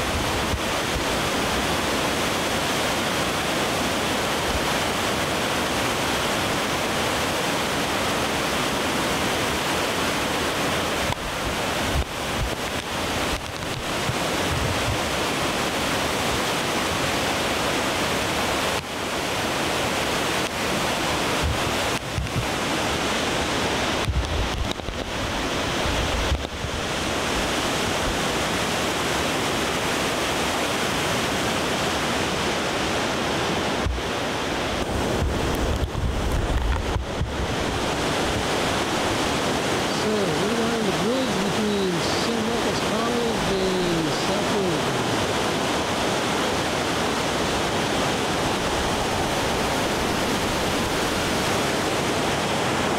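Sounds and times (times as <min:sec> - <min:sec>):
river whitewater rushing: 0:00.0 - 0:52.9
wind buffeting microphone: 0:11.0 - 0:15.3, 0:21.2 - 0:28.3, 0:33.3 - 0:39.6.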